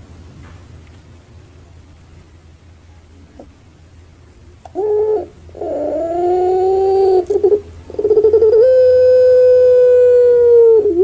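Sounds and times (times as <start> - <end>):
dove calling: 4.7 - 11.0.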